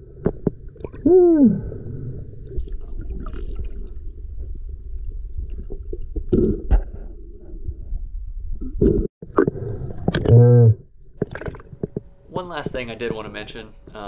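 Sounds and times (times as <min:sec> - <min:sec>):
low underwater rumble: 0:00.0 - 0:12.3
muffled whoop underwater: 0:01.0 - 0:01.7.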